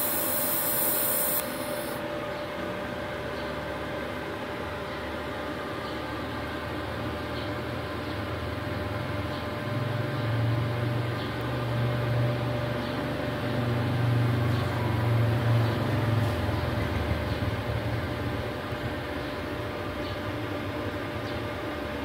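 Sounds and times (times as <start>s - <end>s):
machinery humming: 0.0s - 3.1s.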